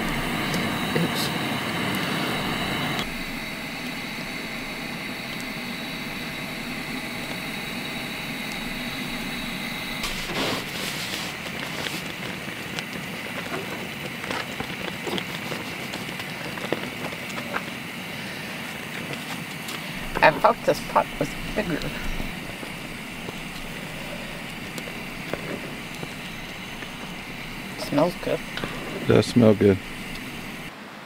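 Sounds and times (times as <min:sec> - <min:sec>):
camp stove burner hissing: 0:00.0 - 0:31.0.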